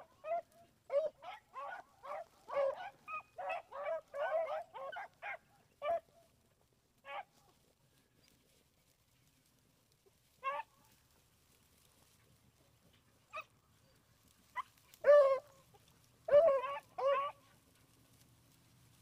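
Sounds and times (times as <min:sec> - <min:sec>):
dogs barking: 0:00.1 - 0:06.1, 0:14.5 - 0:18.0.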